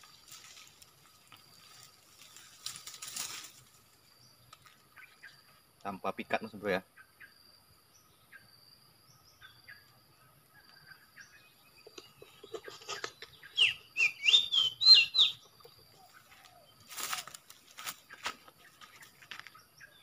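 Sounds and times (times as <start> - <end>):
faint clicks and rustles: 0.0 - 4.9
bird whistling song: 13.0 - 16.7.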